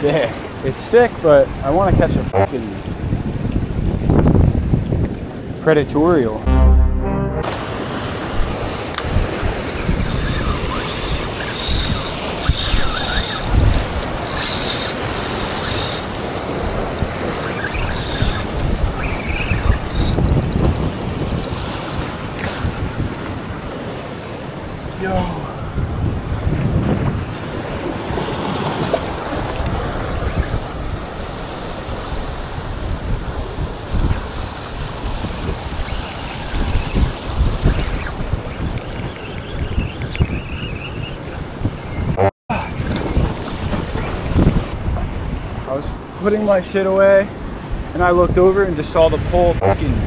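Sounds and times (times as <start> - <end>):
wind on microphone: 1.6 - 5.6, 7.5 - 46.1, 47.4 - 50.0
fishing reel clicking and whirring: 10.0 - 16.2, 17.5 - 18.5, 19.6 - 20.2, 30.6 - 32.1
surf washing against rocks: 20.0 - 39.0, 42.7 - 49.3.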